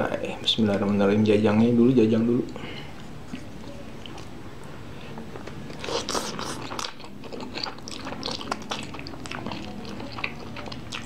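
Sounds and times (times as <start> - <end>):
wet chewing: 3.3 - 4.3, 5.0 - 11.0
noodle slurp: 5.8 - 11.0.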